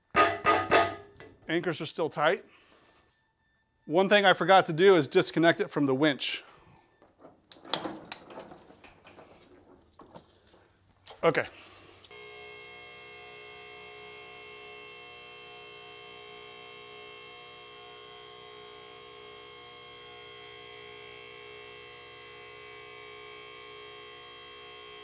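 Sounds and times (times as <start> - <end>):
hydraulic power unit humming: 11.9 - 25.0.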